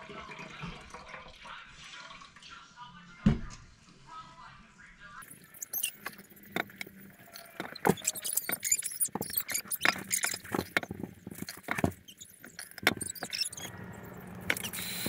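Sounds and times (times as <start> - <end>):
liquid pouring: 0.0 - 2.7.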